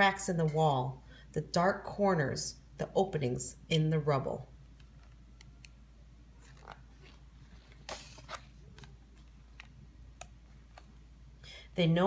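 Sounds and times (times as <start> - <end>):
paper rustle: 6.4 - 9.3
book page turning: 6.4 - 9.8.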